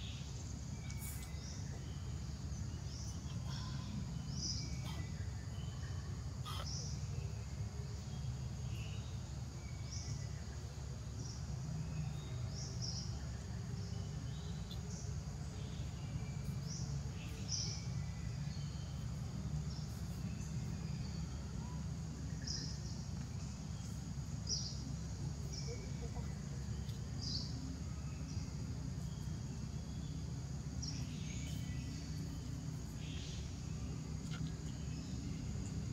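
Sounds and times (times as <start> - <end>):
high insect drone: 0.0 - 35.9.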